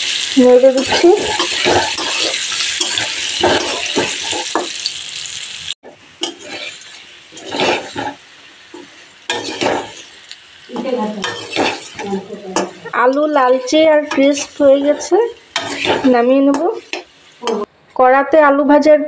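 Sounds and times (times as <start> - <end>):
potatoes sizzling in oil: 0.0 - 17.7
metal spatula scraping pan: 0.1 - 4.7, 6.2 - 8.2, 8.8 - 10.2, 10.8 - 17.7.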